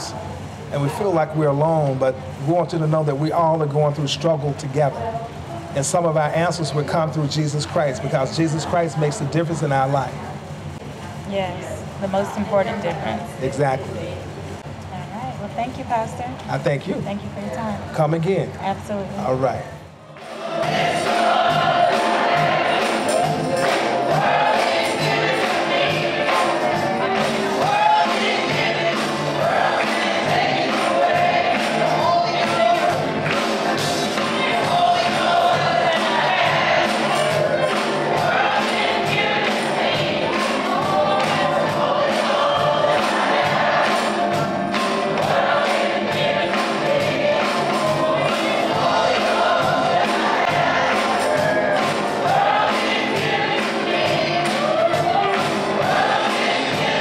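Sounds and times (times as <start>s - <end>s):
choir and congregation singing: 20.0s - 57.0s
steady beat: 20.2s - 57.0s.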